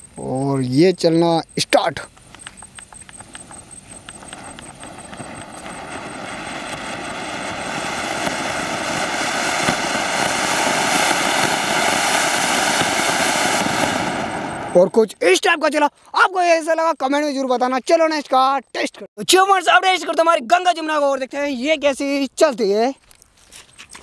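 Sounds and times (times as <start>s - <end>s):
firework crackling pops: 2.0s - 15.0s
firework sparks hissing: 2.2s - 15.0s.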